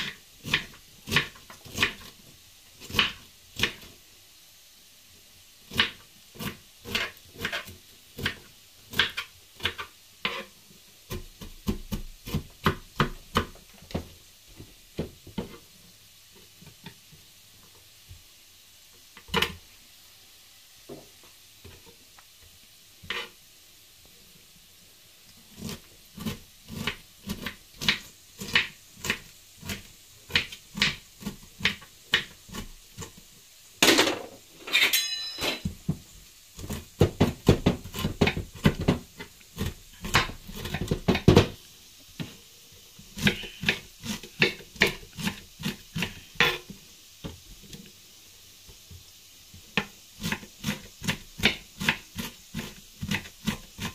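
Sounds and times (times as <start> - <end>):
knife chopping cabbage on board: 0.0 - 2.2, 2.8 - 3.9, 5.7 - 10.5, 11.1 - 14.1, 25.5 - 33.2, 36.6 - 41.6, 43.1 - 46.7, 49.7 - 53.9.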